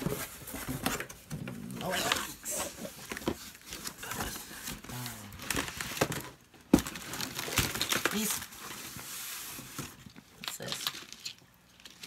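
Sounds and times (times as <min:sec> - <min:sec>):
packaging rustling and crinkling: 0:00.0 - 0:12.0.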